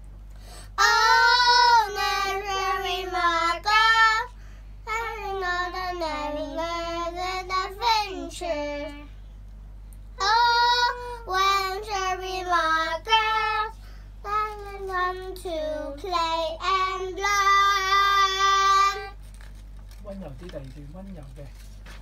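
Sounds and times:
girls singing: 0:00.8 - 0:04.3, 0:10.2 - 0:19.2.

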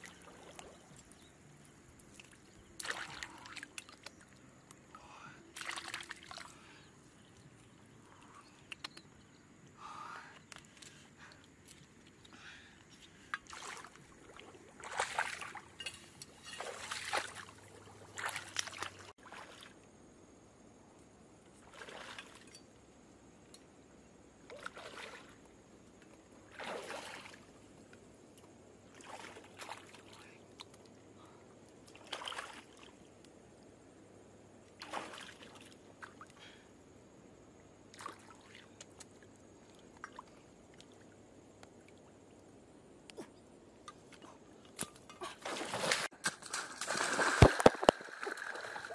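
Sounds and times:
water splashing and sloshing: 0:00.0 - 0:04.9, 0:05.5 - 0:09.0, 0:13.0 - 0:19.9, 0:21.5 - 0:22.7, 0:24.4 - 0:31.1, 0:31.8 - 0:33.2, 0:34.6 - 0:36.5, 0:37.9 - 0:42.6, 0:43.8 - 0:48.9.

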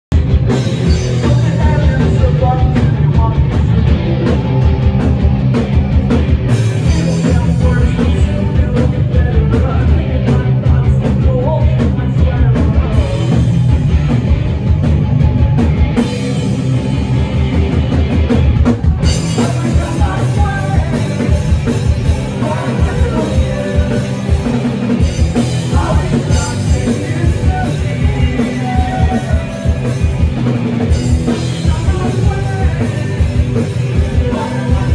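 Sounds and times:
drums: 0:00.0 - 0:34.9
electric guitars: 0:00.1 - 0:34.9
person singing: 0:06.8 - 0:13.4, 0:18.9 - 0:30.1, 0:31.3 - 0:34.9.

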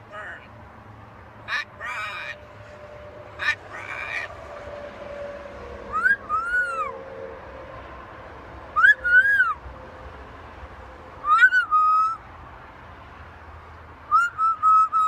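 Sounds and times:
macaw squawking: 0:01.4 - 0:02.4, 0:03.3 - 0:04.4, 0:08.8 - 0:09.6, 0:11.2 - 0:12.2
rising and falling whistles: 0:04.8 - 0:07.0, 0:08.8 - 0:09.6, 0:14.1 - 0:15.0.

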